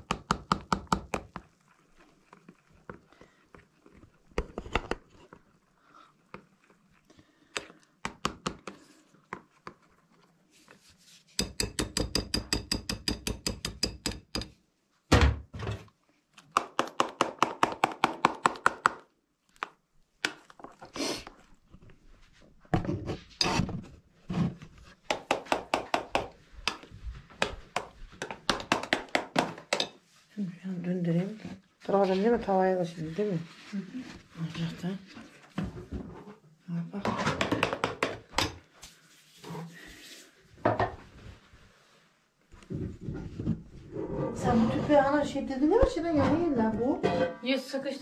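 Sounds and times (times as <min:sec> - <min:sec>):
utensil beating batter in metal bowl: 0:00.0 - 0:14.6, 0:16.4 - 0:30.0.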